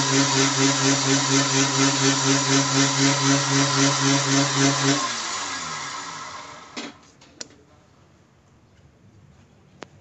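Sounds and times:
wood lathe motor humming: 0.0 - 6.8
motor winding down whine: 0.0 - 7.0.

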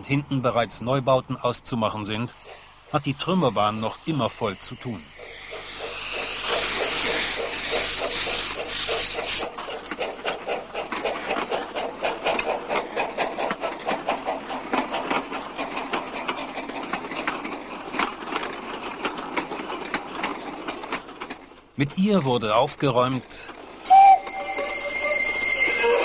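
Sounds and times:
steam locomotive chuffing: 1.9 - 21.7, 23.5 - 26.0
steam hissing: 2.1 - 17.8.

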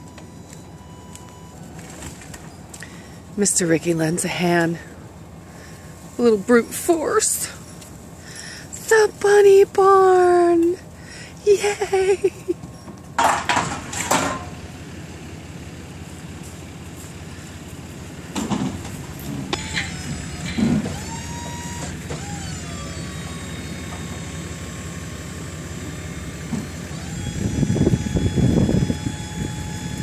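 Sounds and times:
motor whining: 17.2 - 30.0.

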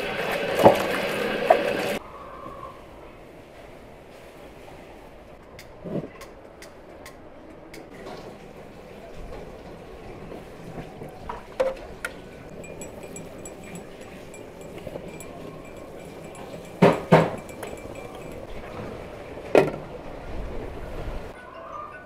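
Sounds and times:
metal pots and lids knocking: 12.5 - 18.5.

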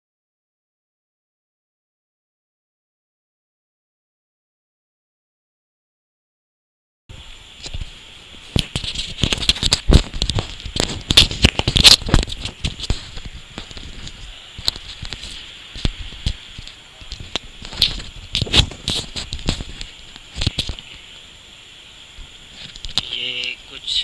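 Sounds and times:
steady hiss: 7.1 - 24.0
clicks and crackling: 8.5 - 21.3, 22.6 - 23.6.

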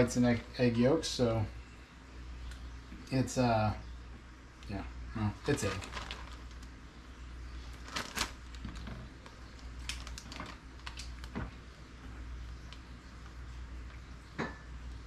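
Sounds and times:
plastic bag crinkling: 5.4 - 6.8, 7.6 - 11.4.

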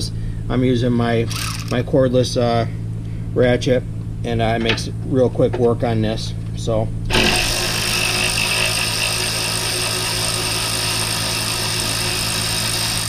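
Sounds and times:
cordless ratchet running: 1.3 - 1.8, 7.1 - 13.0.

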